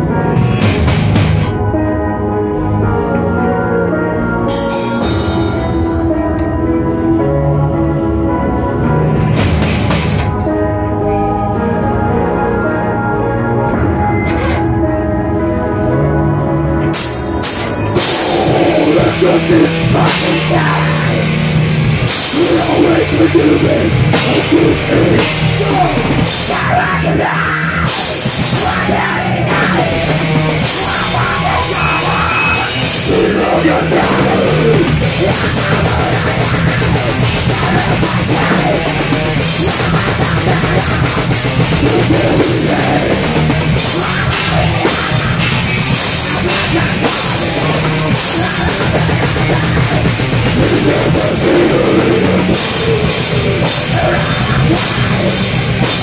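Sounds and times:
drum kit: 0.0 - 1.6, 4.5 - 6.5, 9.1 - 10.5, 16.9 - 56.0
heavy metal band playing: 0.0 - 56.0.

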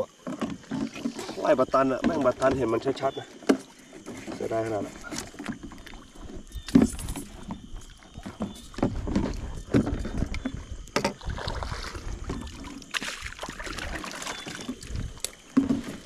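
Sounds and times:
water sloshing and splashing: 0.0 - 16.0.

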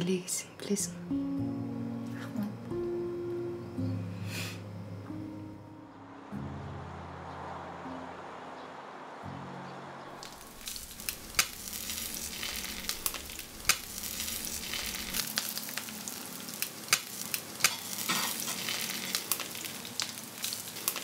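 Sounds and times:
sizzling with crackles and pops: 10.0 - 21.0.

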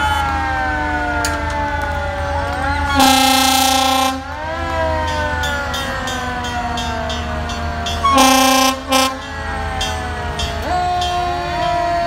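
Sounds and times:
fire truck sirens: 0.0 - 12.0
air horn blasts: 2.9 - 4.4, 8.0 - 9.3.

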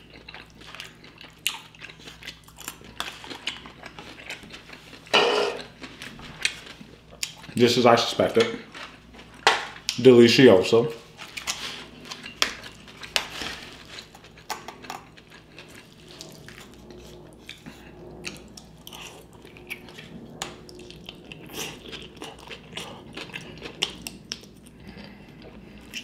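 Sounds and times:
chewing: 0.0 - 7.6, 11.1 - 26.0
utensils scraping a dish: 5.1 - 5.7.

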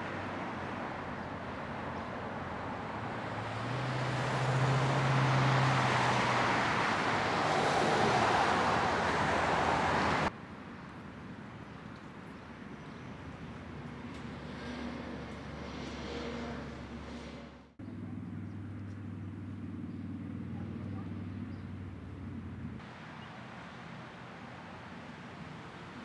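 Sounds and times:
road traffic passing: 0.0 - 26.0
low engine hum: 13.6 - 26.0.

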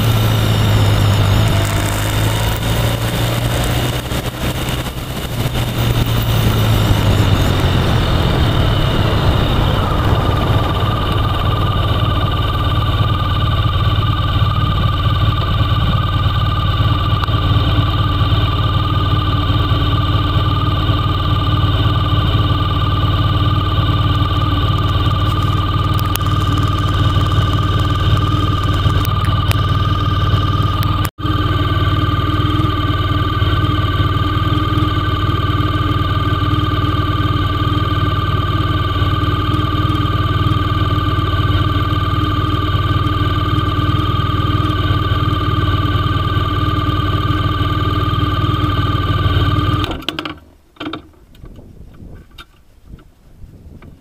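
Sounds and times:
wind rush: 0.0 - 14.1
motorcycle engine: 0.0 - 51.6.

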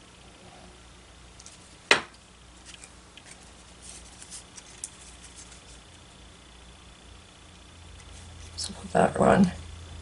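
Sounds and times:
cardstock rustling and ticking: 2.6 - 6.0.

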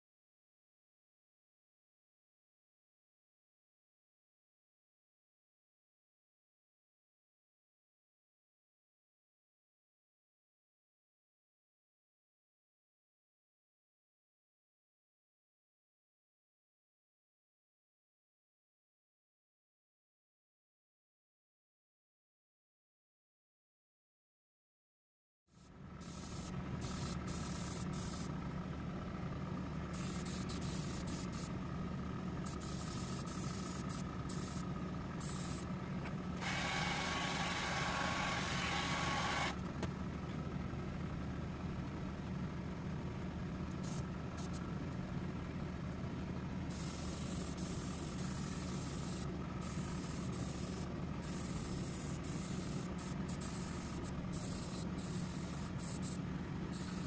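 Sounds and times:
extraction fan hum: 25.7 - 57.0
airbrush spraying hiss: 26.1 - 28.3, 29.9 - 31.5, 32.5 - 34.6, 46.7 - 56.2.

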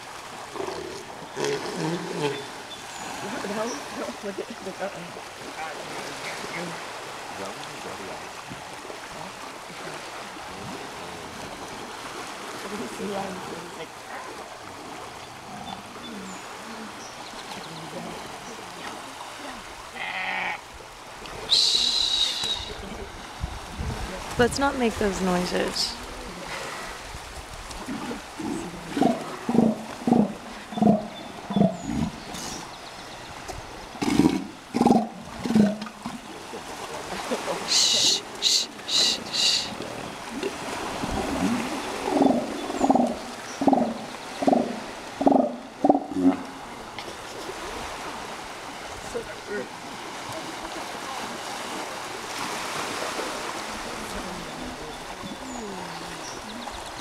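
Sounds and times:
elephant seals calling: 19.9 - 20.7, 21.5 - 23.0, 27.8 - 36.2, 37.6 - 46.7
surf washing over beach: 20.7 - 30.7, 36.2 - 56.6.

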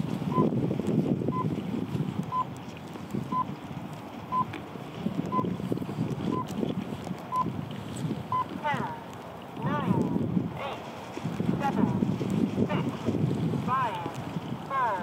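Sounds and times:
wind buffeting microphone: 0.0 - 15.0
electronic timer beeping: 0.3 - 0.5, 5.3 - 5.5.

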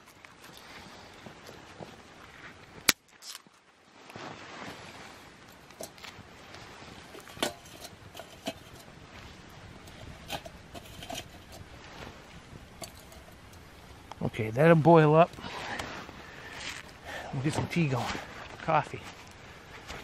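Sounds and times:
metal pot and sticks handled: 5.5 - 6.2, 7.0 - 14.0
stove fire clicking and popping: 7.0 - 8.9, 9.8 - 11.7, 12.6 - 14.2.

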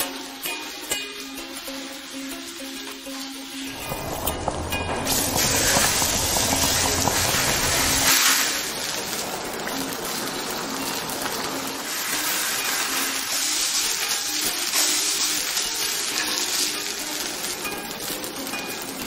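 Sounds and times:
broth boiling: 0.0 - 19.0
meat sizzling: 0.0 - 19.0
low rumble: 3.7 - 12.0.

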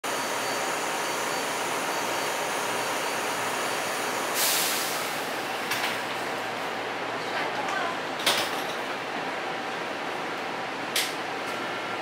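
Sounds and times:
train car humming: 0.0 - 12.0
pneumatic air hiss: 4.3 - 5.2.

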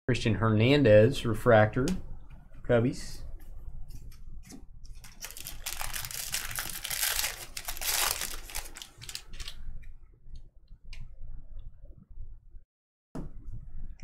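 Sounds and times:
foil wrapper tearing and crinkling: 4.9 - 9.6.

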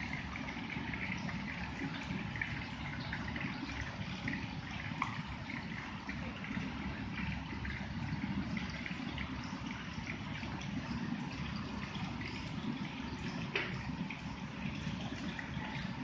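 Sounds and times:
tap water running into pot: 13.0 - 16.0.

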